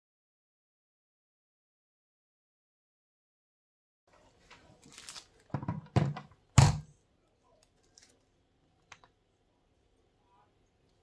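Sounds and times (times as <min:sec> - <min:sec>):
objects thudding on stone countertop: 0:05.5 - 0:06.9.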